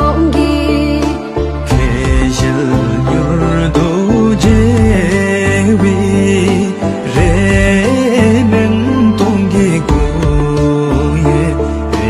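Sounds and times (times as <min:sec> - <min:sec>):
soft percussive beats: 0:01.0 - 0:02.8, 0:03.8 - 0:05.4, 0:06.6 - 0:08.4, 0:09.2 - 0:11.1.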